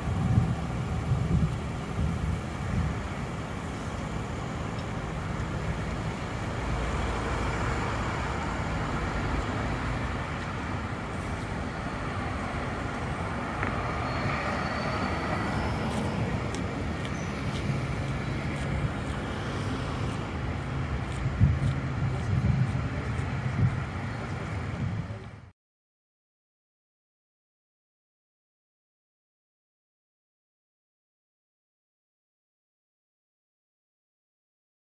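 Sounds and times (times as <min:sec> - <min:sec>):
train rolling across bridge: 0:00.0 - 0:25.4
city traffic noise: 0:00.0 - 0:25.5.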